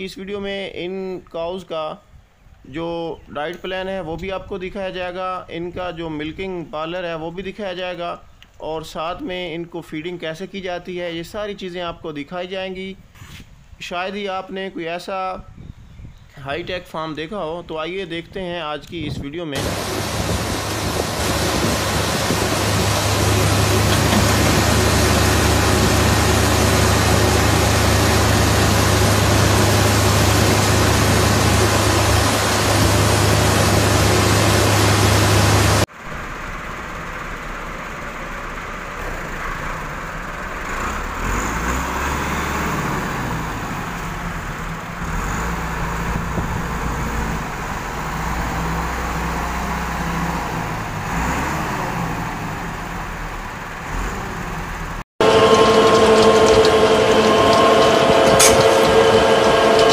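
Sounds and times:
loader and feed mixer running: 19.6 - 51.9, 52.6 - 59.9
tractor engine running: 19.6 - 59.9.

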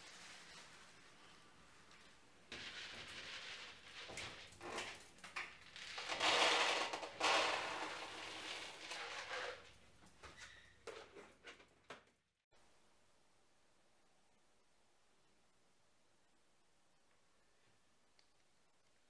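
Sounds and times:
kibble pouring into plastic bowl: 1.9 - 9.8.

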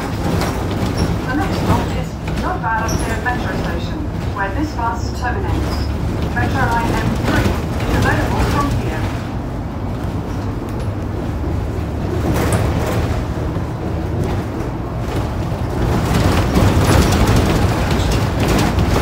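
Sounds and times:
bus engine rumble and road noise: 0.0 - 19.0
short rattles: 14.2 - 19.0.

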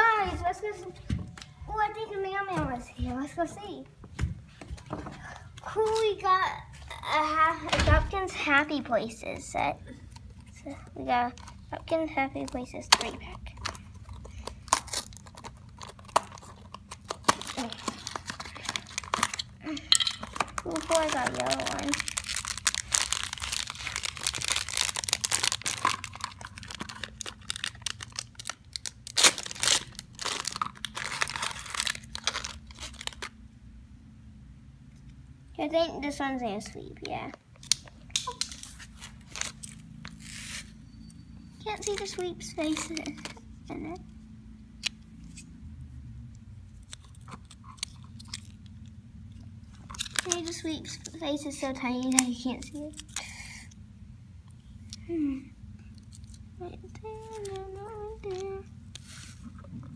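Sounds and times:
foil wrapper crinkling: 12.4 - 33.4, 37.6 - 40.8, 41.7 - 43.3, 49.7 - 51.2
foil wrapper tearing: 13.6 - 19.6, 20.2 - 33.4, 37.6 - 40.7, 49.8 - 51.1.

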